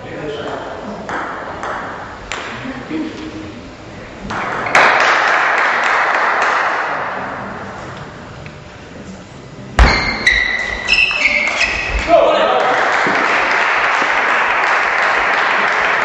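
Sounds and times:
table tennis ball hits: 0.4s - 2.6s, 4.3s - 7.0s
loud thud at serve: 9.8s - 10.3s
crowd applause: 12.2s - 16.0s.

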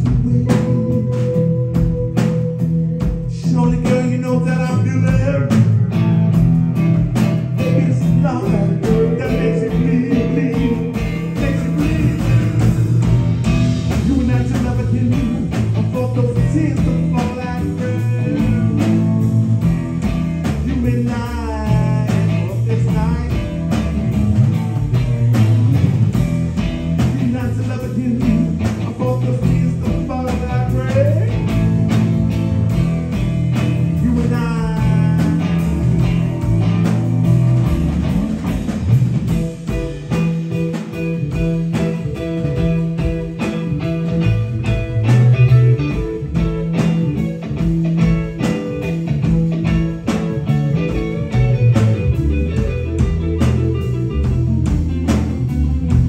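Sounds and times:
bass guitar: 0.0s - 56.0s
drum kit: 0.0s - 56.0s
electric guitar: 0.0s - 56.0s.

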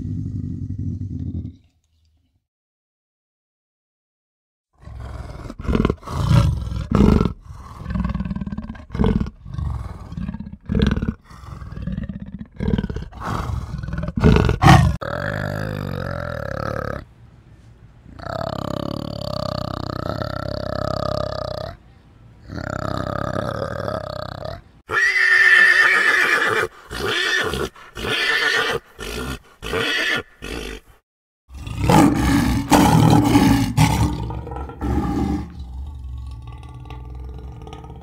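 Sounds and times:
lioness roaring: 0.0s - 1.7s, 4.8s - 17.0s, 31.5s - 38.0s
pony whinnying: 24.9s - 30.8s.

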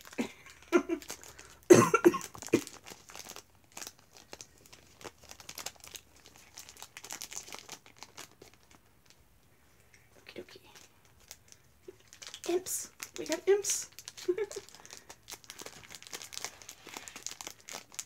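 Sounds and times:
packaging rustling and crinkling: 0.0s - 9.2s, 10.7s - 18.0s
person coughing: 1.7s - 2.7s.

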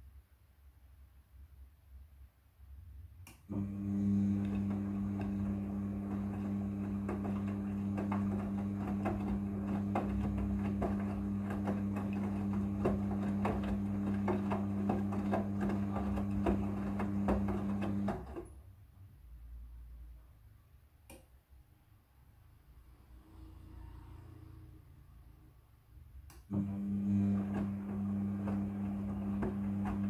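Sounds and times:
washing machine motor humming: 3.5s - 18.6s, 26.4s - 30.0s
knocks inside washing drum: 6.0s - 18.4s.

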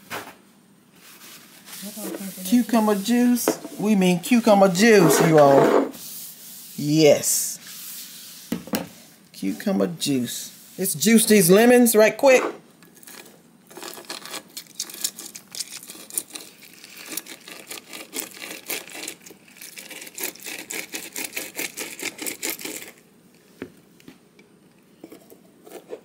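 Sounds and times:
lemons being juiced by hand: 12.8s - 23.0s.

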